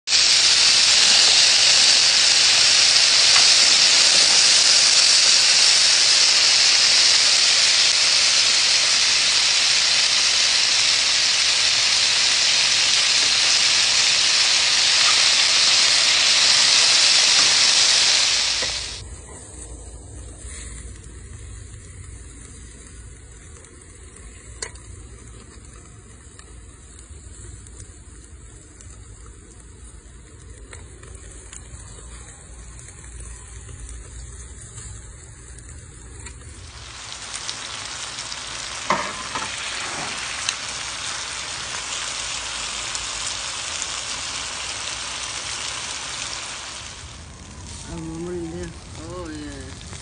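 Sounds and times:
food sizzling in frying pan: 0:00.0 - 0:50.0
low rumble: 0:46.8 - 0:50.0.

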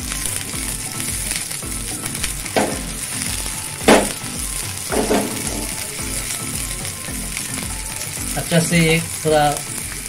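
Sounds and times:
food sizzling in frying pan: 0:00.0 - 0:10.0
spatula knocking against pan: 0:02.6 - 0:02.9, 0:03.9 - 0:04.2, 0:04.9 - 0:05.8.

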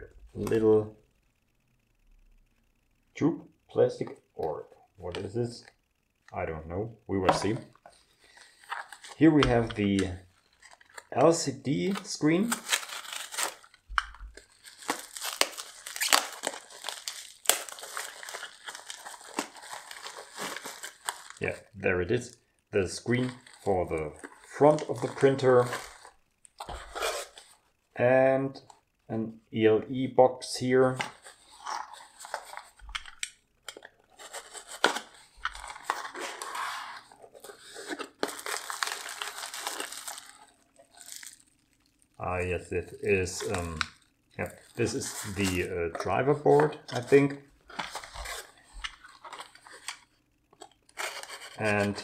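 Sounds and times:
plastic bag crinkling: 0:07.4 - 0:21.7, 0:23.0 - 0:27.7, 0:31.0 - 0:52.0.

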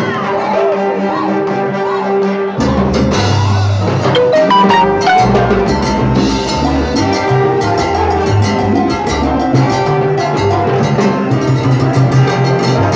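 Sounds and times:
live salsa band playing: 0:04.2 - 0:06.5, 0:07.2 - 0:12.9.

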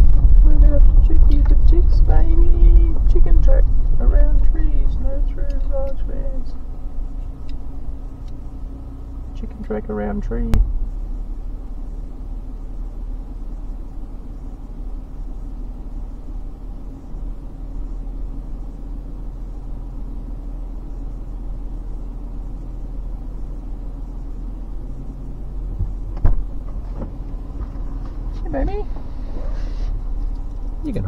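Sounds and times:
vehicle engine idling: 0:00.0 - 0:31.0
short thump: 0:10.5 - 0:10.9, 0:25.7 - 0:28.2.

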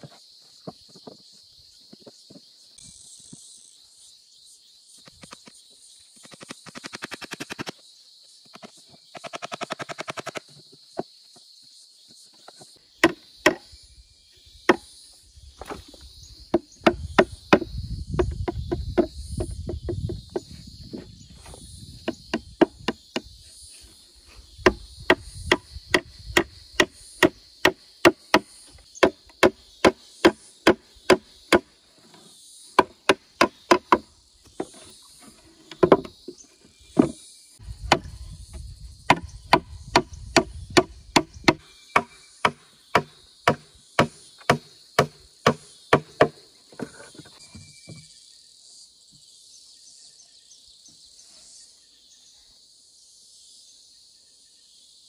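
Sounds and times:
hammering nails into wood: 0:39.1 - 0:46.4.

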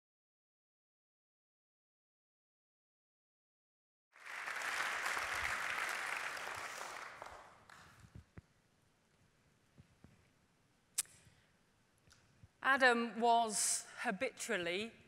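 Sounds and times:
audience applauding: 0:04.2 - 0:08.0.

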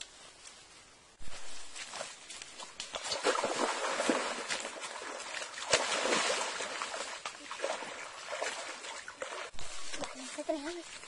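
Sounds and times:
muddy water splashing: 0:01.3 - 0:11.0.

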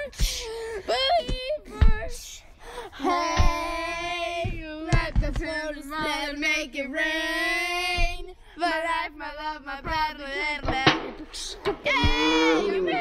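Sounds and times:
short thuds: 0:09.9 - 0:13.0.

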